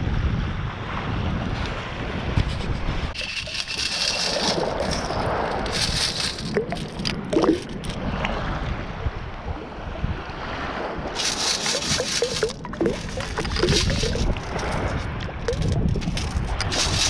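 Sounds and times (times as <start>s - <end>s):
wind buffeting microphone: 0.0s - 17.0s
pebbles rattling in metal scoop: 3.2s - 8.0s, 11.2s - 17.0s
shallow water sloshing: 3.2s - 8.5s, 10.7s - 17.0s.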